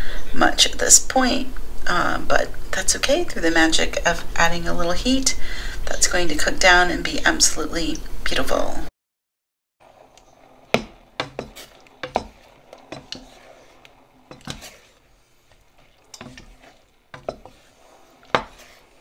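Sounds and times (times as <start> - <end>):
wooden spoon scraping a saucepan: 9.8 - 19.0.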